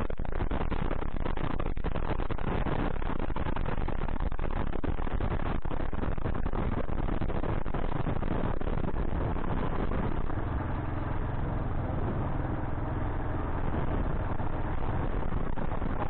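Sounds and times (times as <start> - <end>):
rush of noise: 0.0 - 16.0
motorcycle engine running: 1.3 - 16.0.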